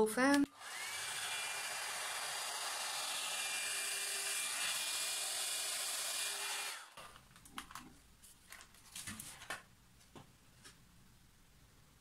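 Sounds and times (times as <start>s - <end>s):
hair dryer blowing air: 0.5s - 7.0s.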